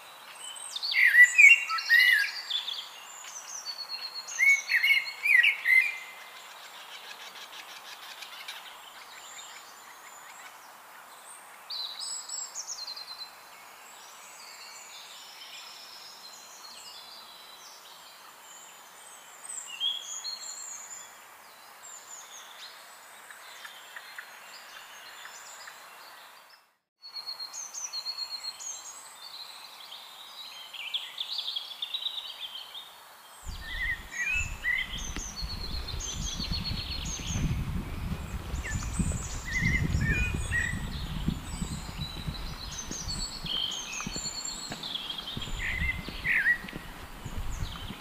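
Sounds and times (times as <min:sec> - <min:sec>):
steady outdoor hiss: 0:00.0 - 0:48.0
birds chirping and singing: 0:33.5 - 0:48.0
low rumbling noise: 0:33.5 - 0:48.0.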